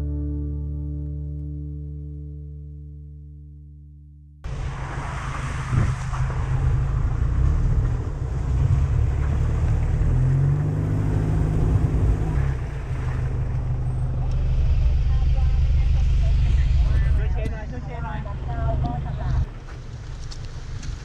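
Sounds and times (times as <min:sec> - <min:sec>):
vehicle engine rumbling: 0:04.4 - 0:21.0
wind buffeting microphone: 0:04.5 - 0:13.0.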